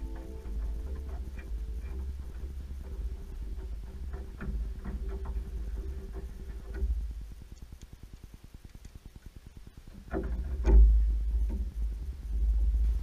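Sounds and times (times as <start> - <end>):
low rumble: 0.0 - 13.0
small plastic clicks: 6.7 - 9.3.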